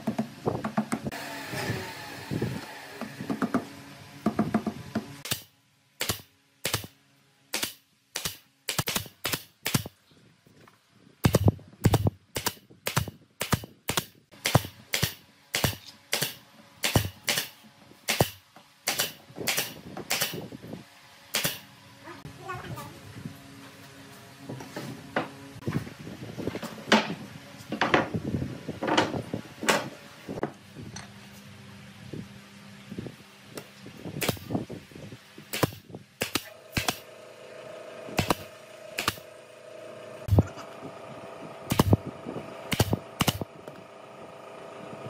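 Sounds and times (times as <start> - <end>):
workshop handling noise: 23.6 - 31.1.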